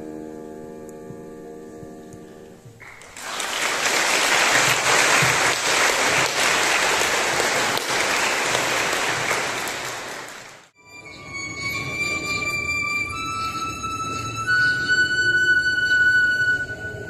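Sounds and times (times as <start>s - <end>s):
audience applauding: 2.8s - 10.8s.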